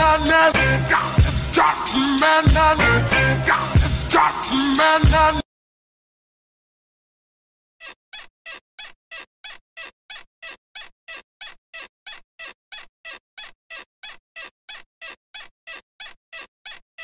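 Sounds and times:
squeaky pulses: 7.8 - 17.0.

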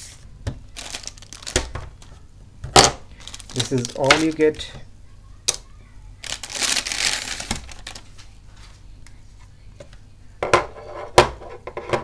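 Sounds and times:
plastic packaging crinkling: 0.7 - 2.1, 2.8 - 4.7, 6.2 - 8.3.

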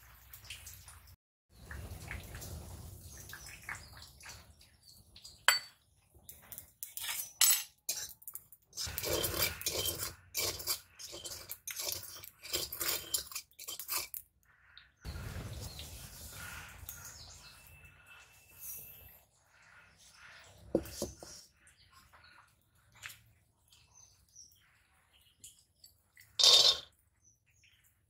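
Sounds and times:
metal spatula scraping a wok: 7.0 - 8.1, 8.8 - 14.2.

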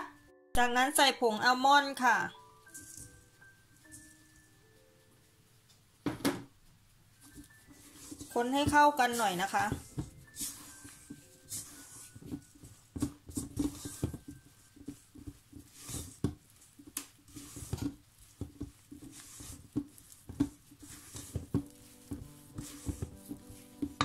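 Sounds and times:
spatula scraping metal bowl: 7.2 - 24.0.

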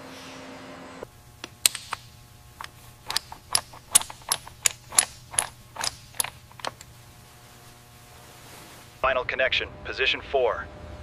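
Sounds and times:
sharp metallic clicks: 1.4 - 6.9.

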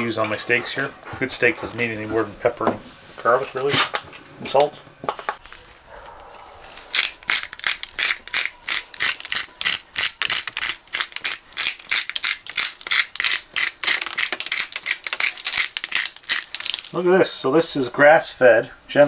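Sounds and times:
spice grinder crunching: 6.8 - 17.1.

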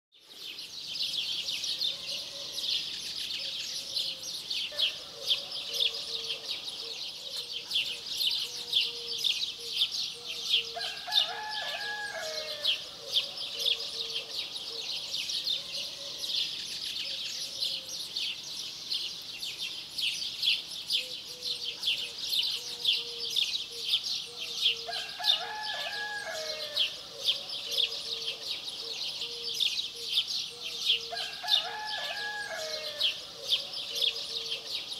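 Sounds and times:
small birds chirping: 0.2 - 11.5, 12.2 - 34.9
rooster crowing: 10.8 - 12.7, 24.9 - 26.8, 31.1 - 33.1.

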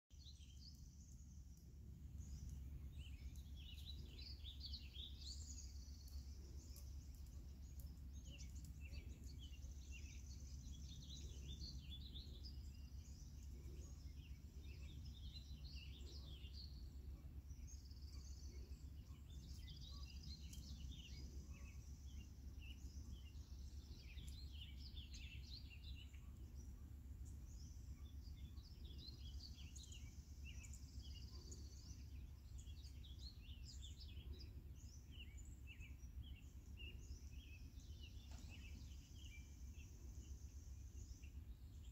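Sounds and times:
low steady background rumble: 0.1 - 41.9
small songbirds chirping: 0.1 - 41.9.

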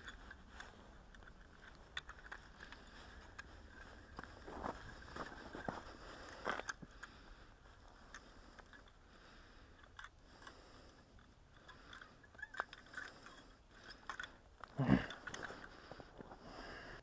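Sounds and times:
fishing gear clicking: 0.0 - 17.0.

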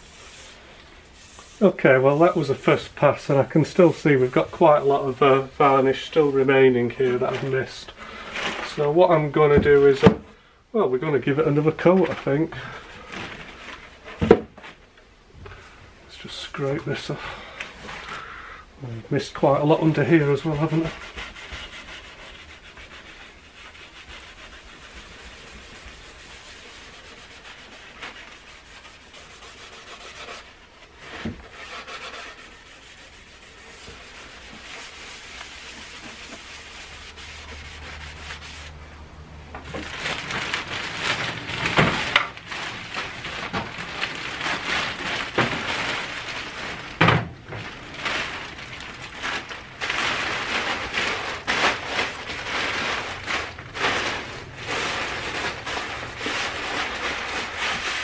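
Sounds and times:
plastic sheeting crackling: 0.0 - 10.0, 19.2 - 38.8, 39.6 - 58.0
quiet rubbing and scraping: 0.0 - 10.1, 10.8 - 46.9.

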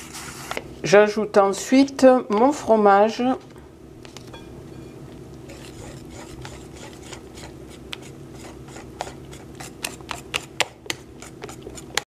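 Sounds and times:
steady low hum: 0.0 - 12.0
whisk scraping plastic bowl: 5.5 - 12.0.

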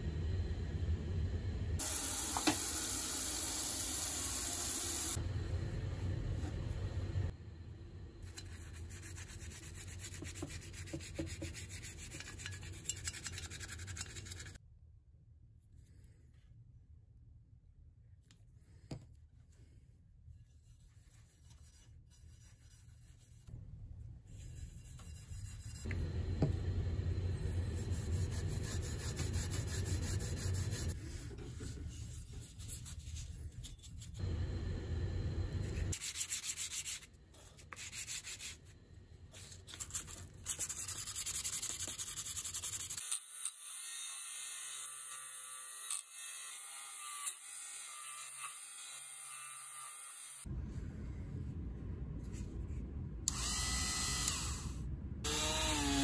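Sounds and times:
toothbrush scrubbing metal: 8.2 - 14.6, 27.6 - 34.2, 35.9 - 38.6, 39.4 - 43.2.

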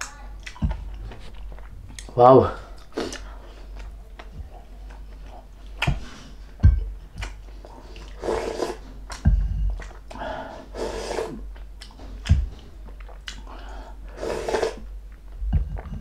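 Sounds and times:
chewing crispy food: 0.3 - 6.6, 11.4 - 13.7
dull thumps: 0.6 - 1.6, 5.8 - 7.5, 9.0 - 10.1, 11.9 - 12.8
slurping soup off wooden spoon: 8.0 - 8.9, 14.1 - 14.8.

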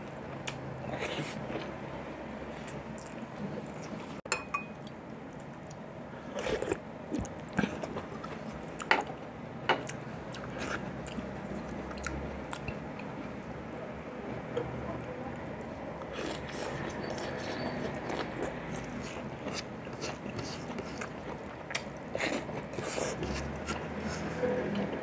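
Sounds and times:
man chewing and lip-smacking: 9.8 - 13.1, 16.0 - 23.9.

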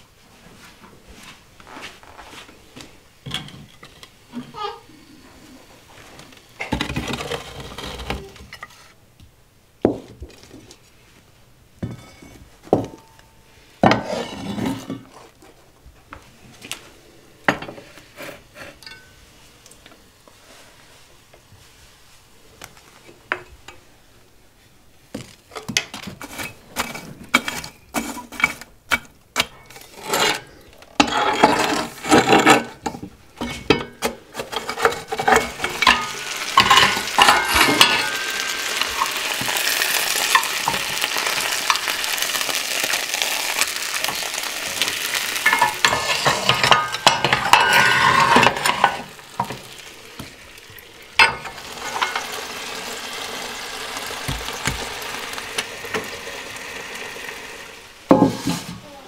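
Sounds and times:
metal tool scraping oven hearth: 6.6 - 9.0, 13.8 - 15.4, 29.4 - 58.9
metal knocking on cast-iron pots: 32.8 - 41.9, 45.4 - 49.8, 51.2 - 52.4.

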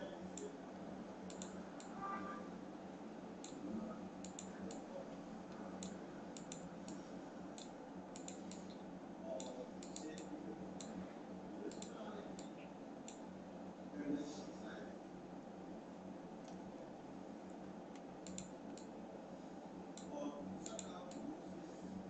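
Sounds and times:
faint room hum: 0.0 - 22.0
computer mouse clicking: 1.2 - 1.9, 3.4 - 3.6, 4.2 - 4.9, 5.5 - 8.8, 9.4 - 11.0, 11.7 - 13.2, 17.9 - 18.9, 19.9 - 21.3.

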